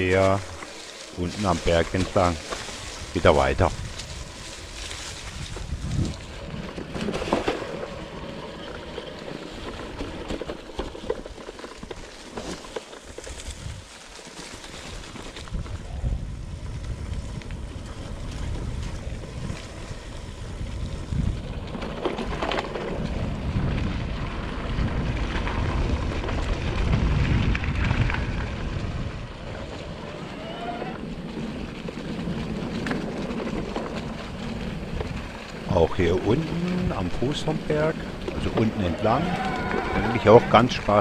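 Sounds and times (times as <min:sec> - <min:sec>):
wind buffeting microphone: 0:00.0 - 0:07.4, 0:14.9 - 0:41.0
bike tyres rolling on dirt: 0:00.0 - 0:41.0.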